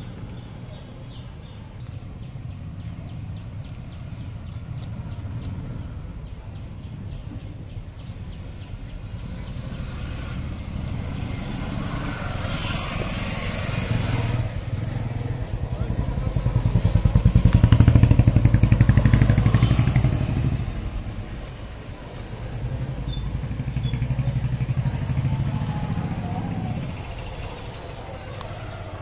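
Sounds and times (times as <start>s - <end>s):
low engine rumble: 0.0s - 29.0s
vehicle passing: 8.5s - 29.0s.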